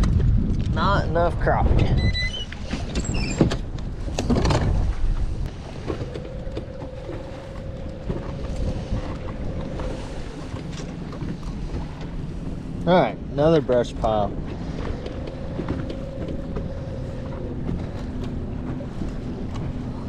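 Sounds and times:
water slapping boat hull: 0:00.0 - 0:20.0
wind on microphone: 0:00.0 - 0:20.0
electric trolling motor whine: 0:13.9 - 0:20.0.

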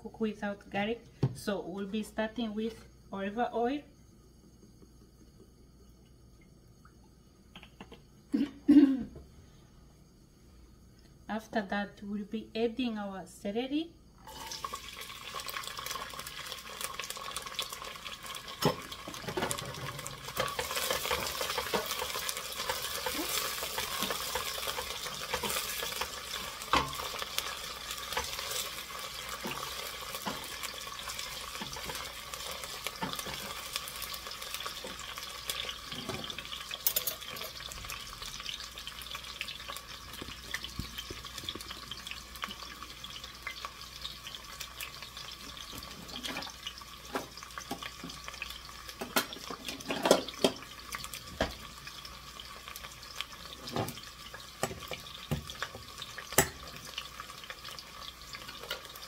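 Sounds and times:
celery sizzling in hot oil: 0:14.0 - 0:59.0.

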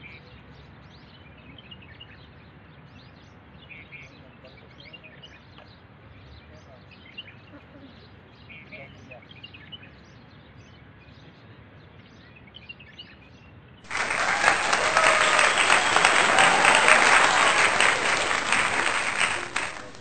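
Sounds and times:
crowd applauding: 0:13.9 - 0:20.0.

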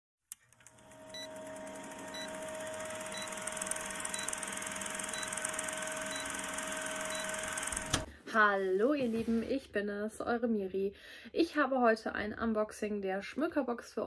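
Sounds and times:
film projector clatter: 0:00.4 - 0:08.1.

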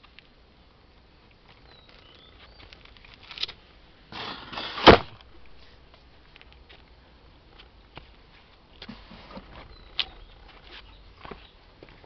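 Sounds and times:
shuffling scrape on stone: 0:04.1 - 0:04.9.

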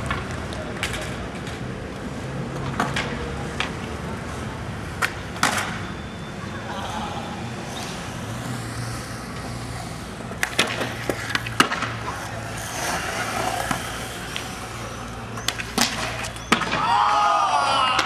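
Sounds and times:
skateboard wheels rolling on concrete: 0:00.0 - 0:18.0
voices calling out: 0:05.9 - 0:18.0
skateboard popping and landing: 0:10.3 - 0:17.0.

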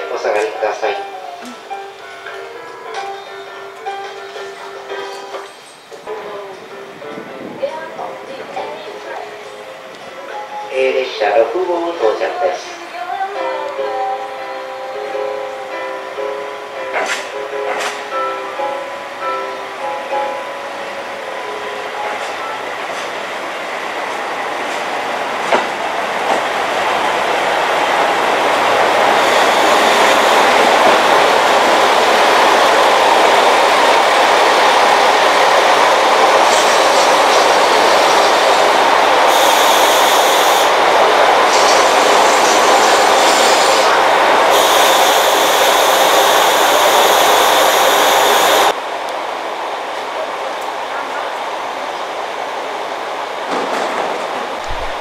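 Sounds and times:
diesel railcar running: 0:15.0 - 0:55.0
high-pitched sound: 0:44.5 - 0:48.7.

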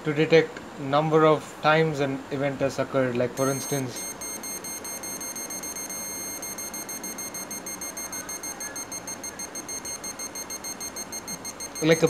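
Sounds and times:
pulsing electronic buzzing tone: 0:03.4 - 0:12.0.

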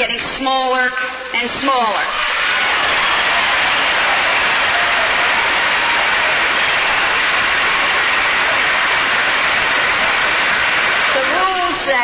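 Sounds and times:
crowd applauding: 0:01.9 - 0:12.0
people shouting: 0:02.1 - 0:11.7.

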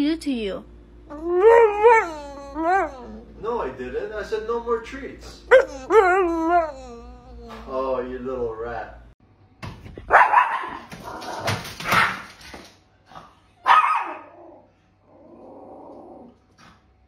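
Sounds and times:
small dog barking: 0:10.1 - 0:10.9, 0:13.6 - 0:14.4.

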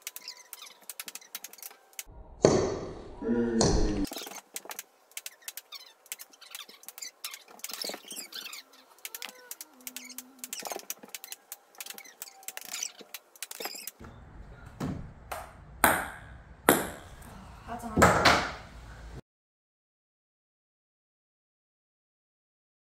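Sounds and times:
squeaky sped-up chirps: 0:00.0 - 0:02.0, 0:05.2 - 0:14.0
ping pong balls bouncing on wood: 0:14.8 - 0:17.1.

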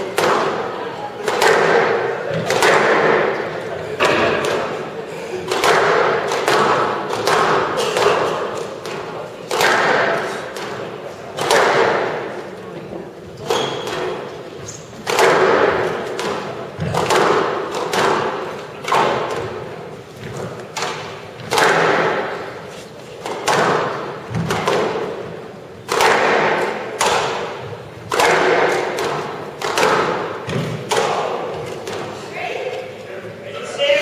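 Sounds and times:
squash ball hits echoing: 0:00.0 - 0:12.6, 0:13.4 - 0:32.4.

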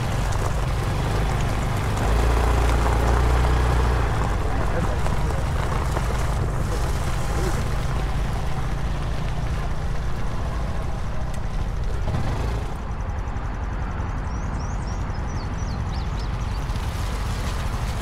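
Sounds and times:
motorcycle engine rumbling: 0:00.0 - 0:18.0
bird chirping: 0:14.2 - 0:16.8.

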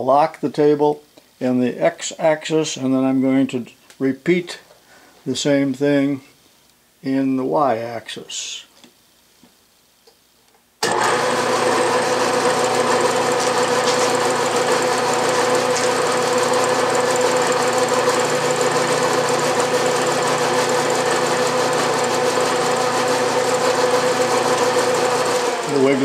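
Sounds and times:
milling machine spindle hum: 0:10.8 - 0:26.0.

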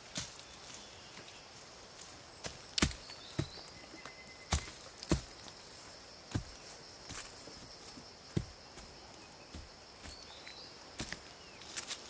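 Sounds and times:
hoe chopping into soil: 0:02.4 - 0:03.6.

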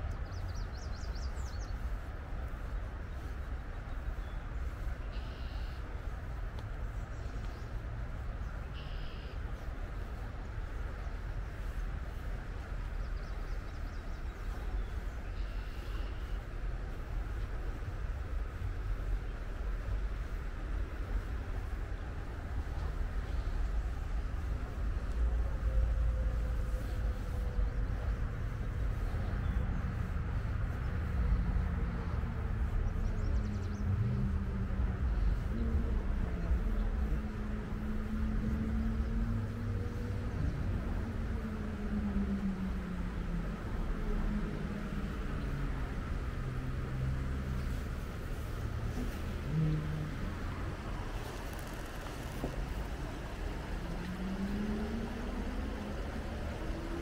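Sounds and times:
distant road traffic: 0:00.0 - 0:57.0
low rumble and hiss: 0:00.0 - 0:57.0
bird chirping: 0:08.7 - 0:09.4.

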